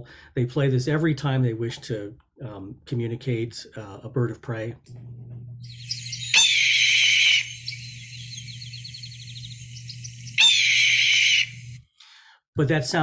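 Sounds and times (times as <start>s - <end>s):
low steady hum: 4.9s - 11.8s
hawk calling: 5.7s - 11.8s.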